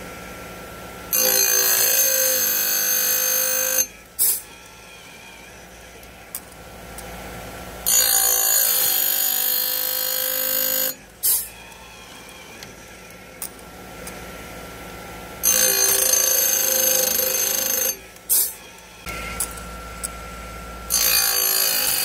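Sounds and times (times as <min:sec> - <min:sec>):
grinder machine running quietly: 0:00.0 - 0:22.0
high-pitched chain grinding: 0:01.1 - 0:05.7, 0:07.8 - 0:14.2, 0:15.4 - 0:20.2, 0:20.9 - 0:22.0.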